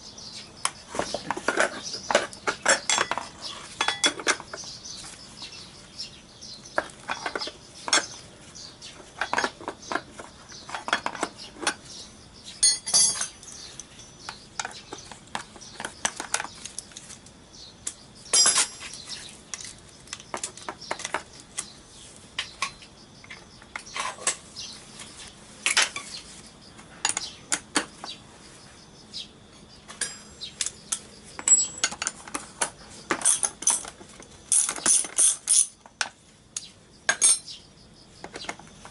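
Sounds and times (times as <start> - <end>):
socket wrench clinking: 12.6 - 14.8, 30.0 - 32.2, 37.1 - 37.5.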